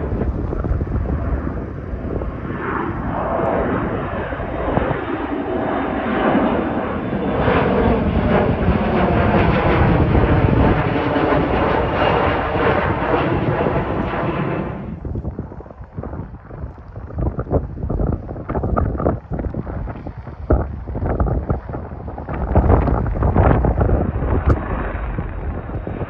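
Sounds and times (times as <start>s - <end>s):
jet engine whine falling in pitch: 0.0s - 15.2s, 21.5s - 26.0s
jet engine noise: 0.0s - 26.0s.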